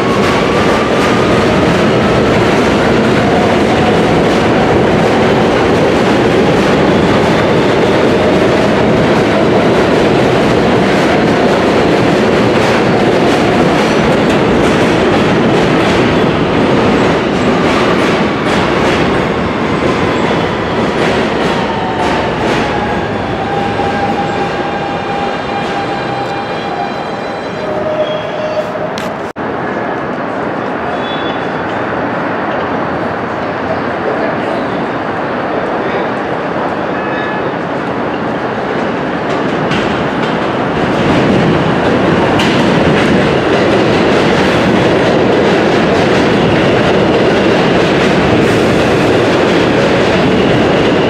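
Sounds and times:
subway train rumbling past: 0:00.0 - 0:51.0
train whine sliding down in pitch: 0:21.2 - 0:29.0.

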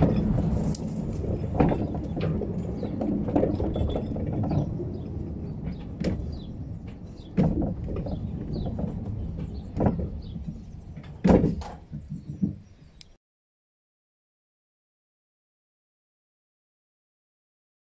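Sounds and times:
train clanks: 0:00.0 - 0:12.8
train wheel rumble: 0:00.0 - 0:12.8.

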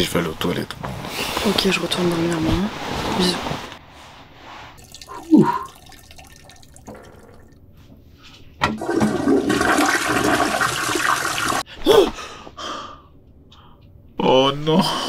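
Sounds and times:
toilet flushing: 0:04.8 - 0:07.5, 0:08.6 - 0:11.6
man sighing: 0:05.1 - 0:05.8.

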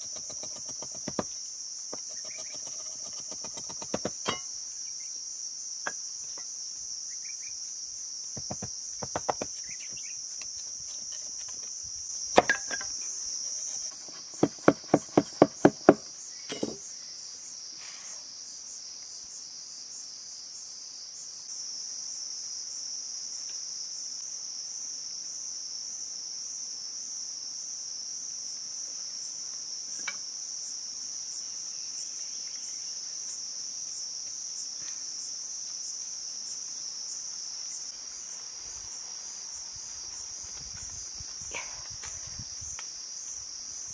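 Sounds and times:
insects chirring: 0:00.0 - 0:43.9
knife knocking on bamboo: 0:08.4 - 0:10.0, 0:14.0 - 0:16.8.

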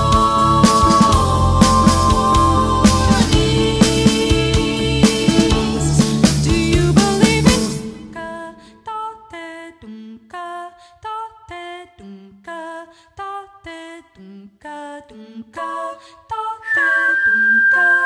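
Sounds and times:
wordless female vocals: 0:00.0 - 0:18.0
high whistled note: 0:16.6 - 0:18.0.

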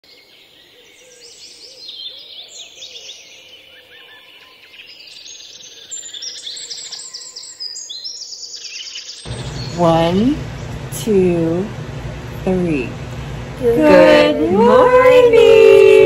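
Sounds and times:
birds chirping and trilling: 0:00.1 - 0:10.9.

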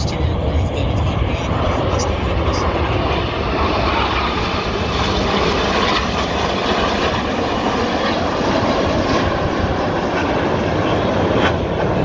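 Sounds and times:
jets flying past: 0:00.0 - 0:12.0.

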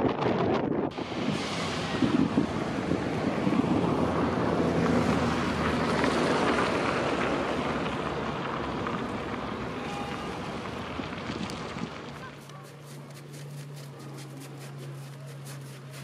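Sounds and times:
wind buffeting microphone: 0:00.0 - 0:12.4
water washing along rocky shore: 0:01.0 - 0:16.0.

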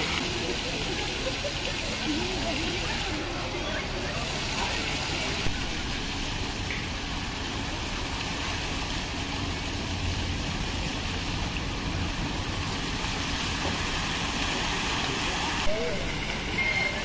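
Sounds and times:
fountain water splashing: 0:00.0 - 0:17.0.

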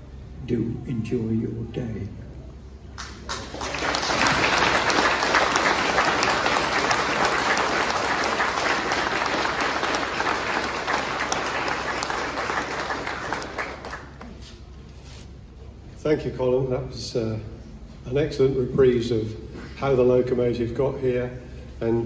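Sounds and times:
crowd applauding: 0:03.0 - 0:14.4.

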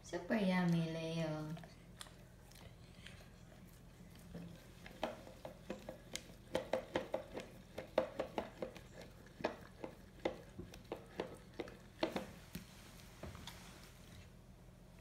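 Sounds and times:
dog licking plastic tub: 0:00.7 - 0:12.6.

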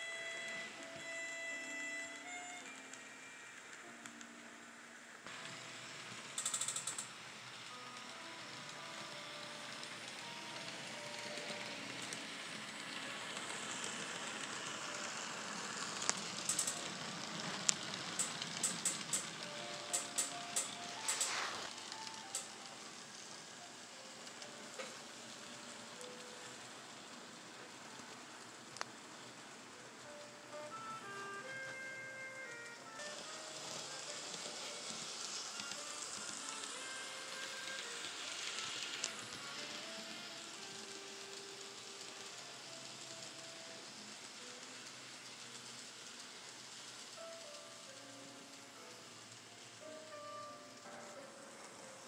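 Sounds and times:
faint background music: 0:00.0 - 0:52.0
model train rumbling: 0:00.0 - 0:52.0
sharp clicks: 0:06.4 - 0:07.1, 0:16.0 - 0:16.9.

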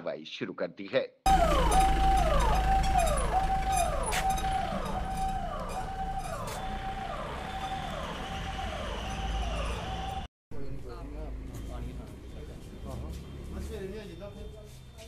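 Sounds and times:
ambulance siren wailing: 0:01.3 - 0:10.3.

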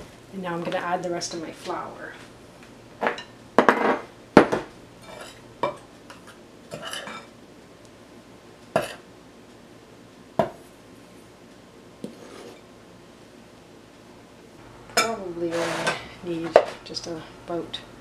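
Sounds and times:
scraping rustles: 0:15.4 - 0:16.8.

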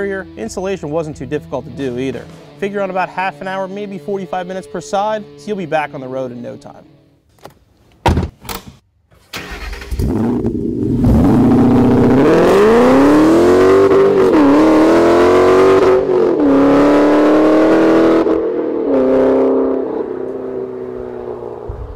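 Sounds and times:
car engine revving: 0:09.4 - 0:21.9.

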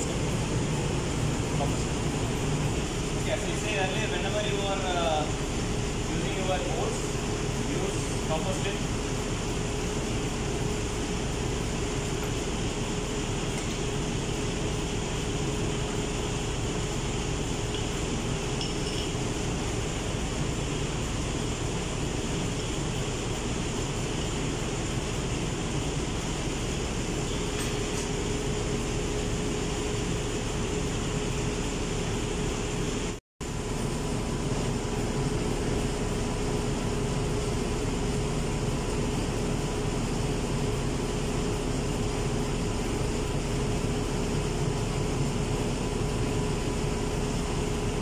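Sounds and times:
constant hum tone: 0:00.0 - 0:48.0
machinery and ventilation drone: 0:00.0 - 0:48.0.

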